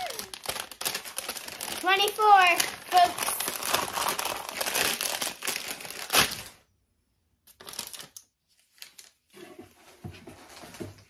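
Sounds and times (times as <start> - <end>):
wrapping crinkling and tearing: 0.0 - 6.6, 7.5 - 9.2.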